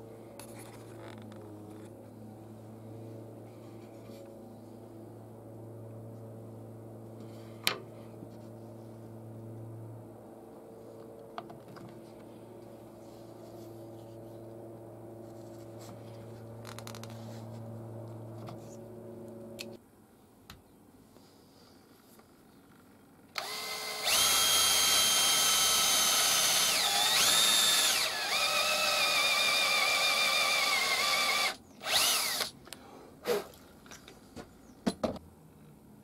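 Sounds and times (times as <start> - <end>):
machine hum: 8.1 - 19.8.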